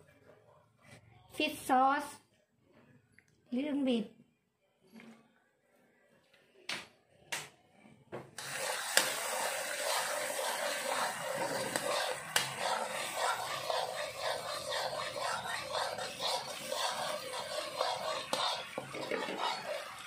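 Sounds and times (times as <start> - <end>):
food sizzling in hot oil: 8.4 - 20.0.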